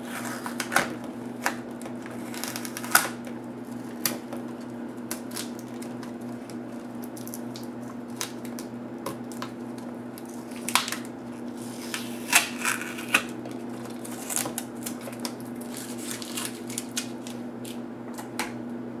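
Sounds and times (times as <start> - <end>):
tape crackling and clicks: 0.0 - 18.8
steady low hum: 0.0 - 19.0.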